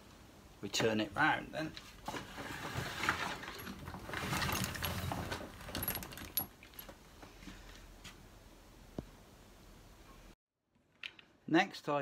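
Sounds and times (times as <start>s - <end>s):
equipment scraping on table: 2.0s - 5.5s.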